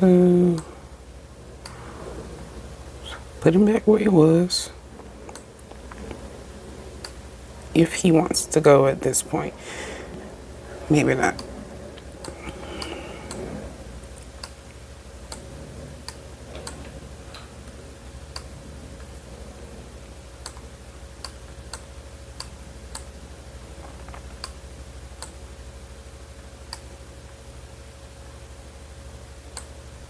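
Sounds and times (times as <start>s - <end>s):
low hum: 0.0s - 30.0s.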